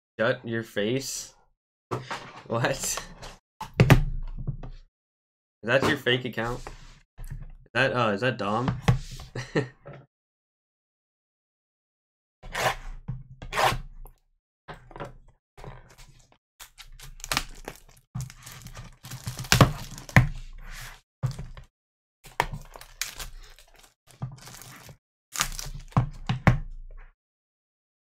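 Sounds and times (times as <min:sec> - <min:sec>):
plastic wrap tearing and crinkling: 0:16.6 - 0:20.2, 0:22.3 - 0:25.9.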